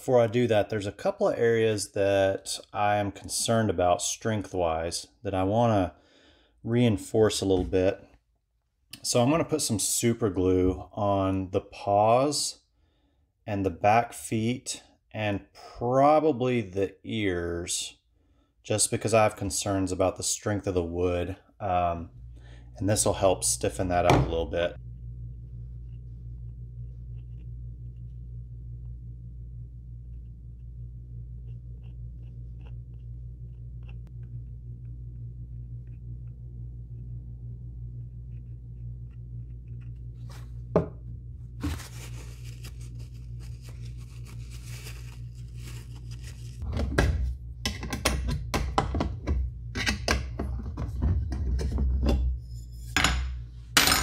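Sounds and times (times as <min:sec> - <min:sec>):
steady low hum: 0:15.9 - 0:54.0
objects set down on wooden workbench: 0:40.3 - 0:41.0.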